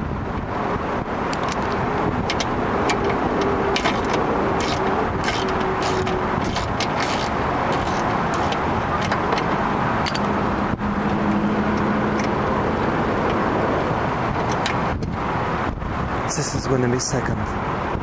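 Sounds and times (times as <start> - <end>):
steady background rumble: 0.0 - 18.0
ratchet wrench clicking: 1.3 - 10.3.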